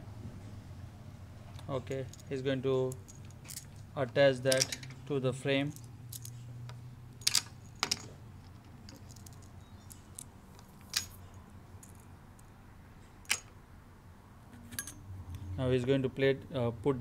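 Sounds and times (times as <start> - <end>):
low steady hum: 0.0 - 17.0
metal bolts clicking into plastic: 2.9 - 5.0, 7.2 - 11.2.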